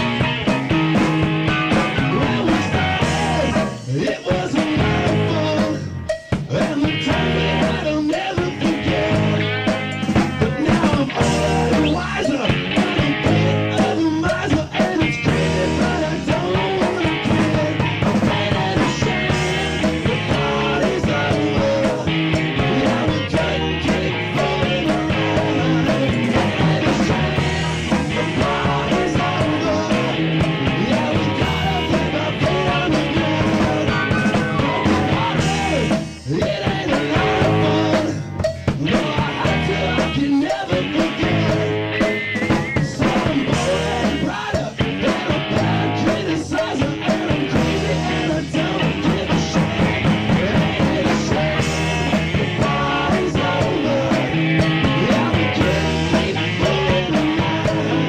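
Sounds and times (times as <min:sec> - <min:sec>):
electric guitar: 0:00.0 - 0:58.0
rock band playing live: 0:00.0 - 0:58.0.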